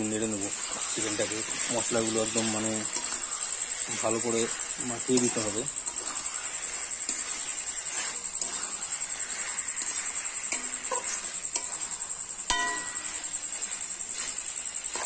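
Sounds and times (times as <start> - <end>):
spatula scraping metal pan: 0.4 - 15.0
metallic knock on pan: 12.5 - 13.0.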